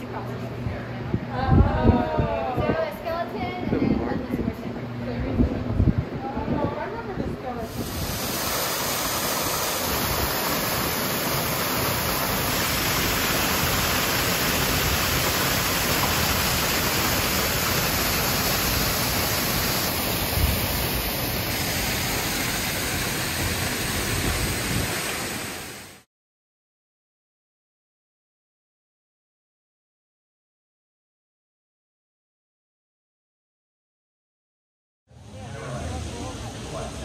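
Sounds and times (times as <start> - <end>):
waterfall splashing into pond: 7.7 - 26.1.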